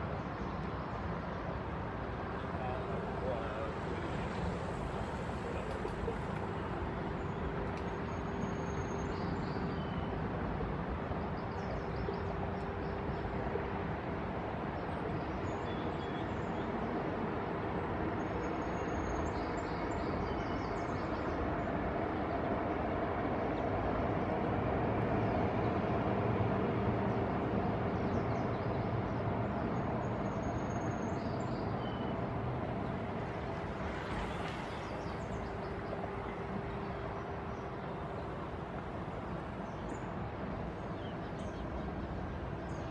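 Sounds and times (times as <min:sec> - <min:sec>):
city traffic rumble: 0:00.0 - 0:42.9.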